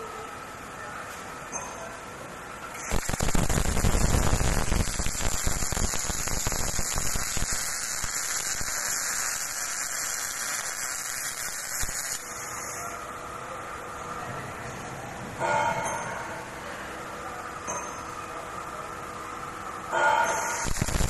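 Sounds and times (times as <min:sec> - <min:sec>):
welding arc crackling and buzzing: 0:02.8 - 0:13.0, 0:20.0 - 0:21.0.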